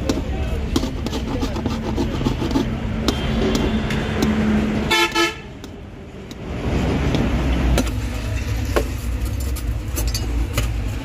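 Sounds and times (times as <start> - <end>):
street traffic rumble: 0.0 - 11.0
vehicle horn honk: 4.9 - 5.5.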